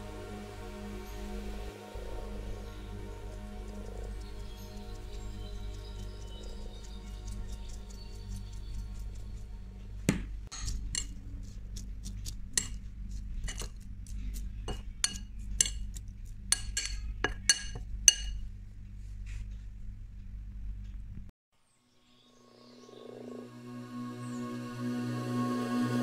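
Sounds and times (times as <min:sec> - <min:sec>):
low hum: 0:00.0 - 0:21.3, 0:22.3 - 0:26.0
metal spoon clinking on plate: 0:10.5 - 0:11.1, 0:13.4 - 0:13.7, 0:14.7 - 0:15.9, 0:16.5 - 0:18.4.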